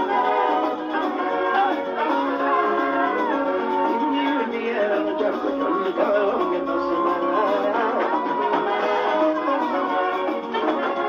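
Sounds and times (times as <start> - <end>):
live band music over speakers: 0.0 - 11.0
melodic lead line: 0.0 - 11.0.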